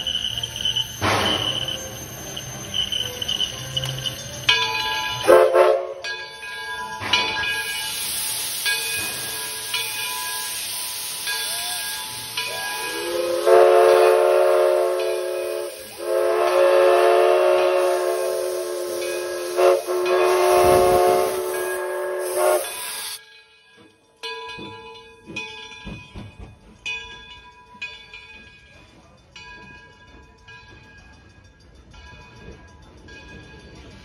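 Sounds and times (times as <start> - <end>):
locomotive chime whistle blasts: 0.0 - 6.2, 6.8 - 23.2
steam locomotive hissing: 0.0 - 23.4.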